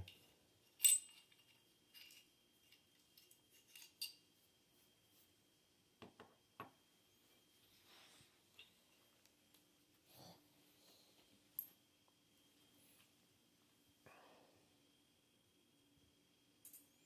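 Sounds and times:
metal parts clinking: 0.0 - 4.2.

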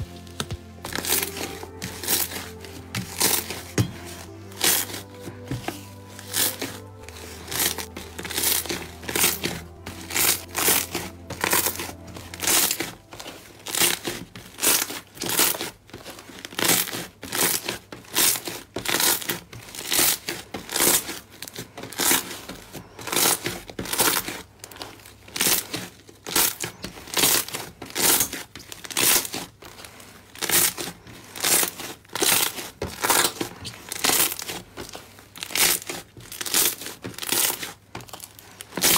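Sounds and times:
soft background music: 0.0 - 15.6
slime squishing: 0.0 - 38.9.

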